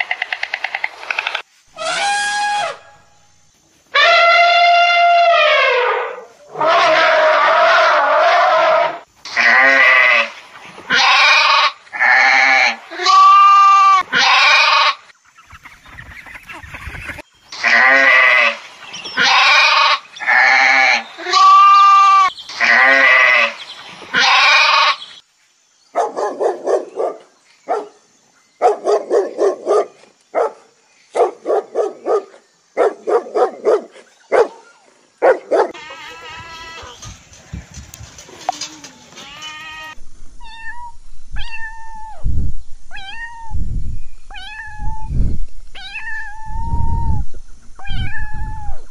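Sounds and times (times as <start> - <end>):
sheep and goats bleating: 9.3 - 15.0, 19.2 - 25.1, 35.7 - 40.0.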